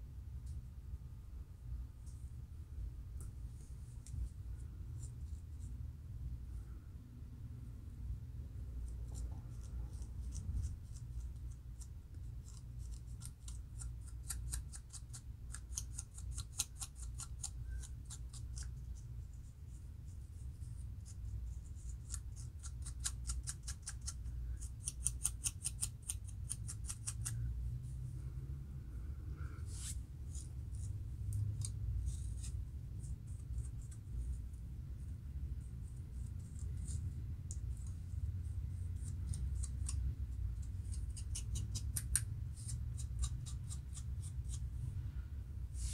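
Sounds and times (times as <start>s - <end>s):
low steady rumble: 0.0s - 45.9s
metal comb scratching scalp: 8.8s - 19.0s, 20.7s - 27.5s, 29.7s - 34.4s, 35.9s - 38.0s, 38.7s - 44.8s.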